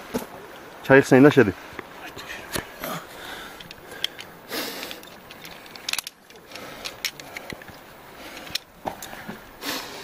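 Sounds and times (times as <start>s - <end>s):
metal gear clicking and clinking: 4.9s - 7.2s.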